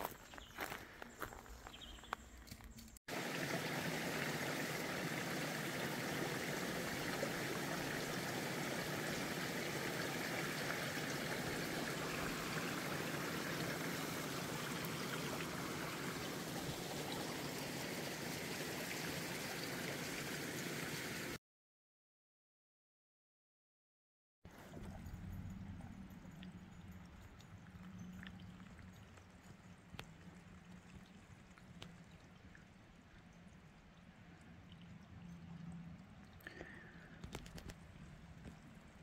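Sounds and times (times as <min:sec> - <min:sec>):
footsteps on dirt trail: 0:00.0 - 0:02.8
creek running water: 0:03.1 - 0:21.4, 0:24.5 - 0:39.0.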